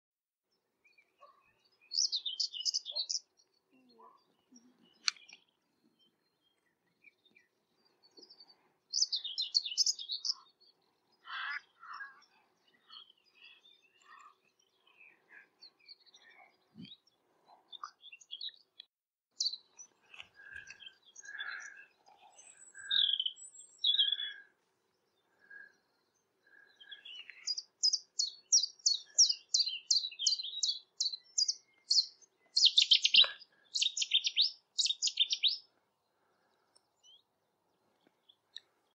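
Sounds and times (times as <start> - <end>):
other birds calling: 1.0 - 18.8, 19.4 - 37.2
warbler song burst: 1.6 - 3.6, 25.2 - 35.7.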